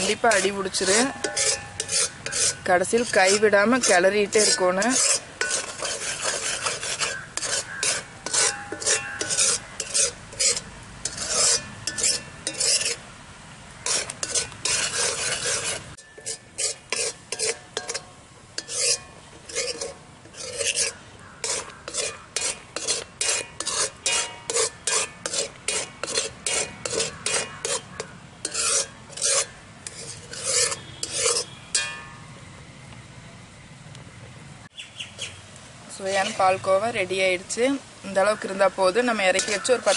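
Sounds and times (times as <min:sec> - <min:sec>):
metal spoon scraping pan: 0:00.0 - 0:13.0, 0:13.8 - 0:32.2, 0:38.2 - 0:39.9.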